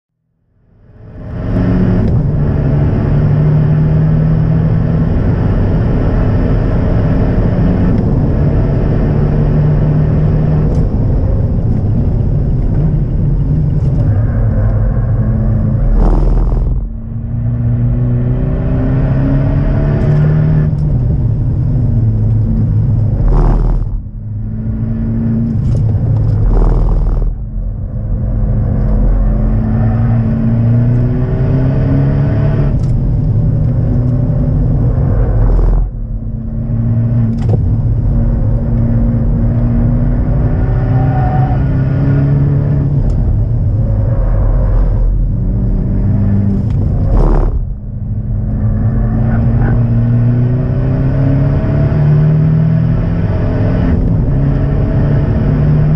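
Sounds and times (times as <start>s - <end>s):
road and tyre rumble: 0.2s - 55.9s
car engine revving in cabin: 0.8s - 55.9s
engine burst on downshift: 13.7s - 17.4s, 22.4s - 28.0s, 32.6s - 39.6s, 42.8s - 50.6s.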